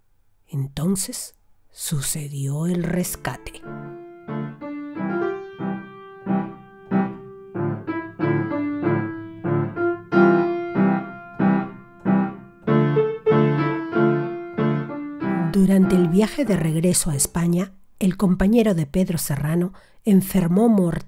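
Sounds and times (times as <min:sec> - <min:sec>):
piano chords: 0:02.7 - 0:17.0.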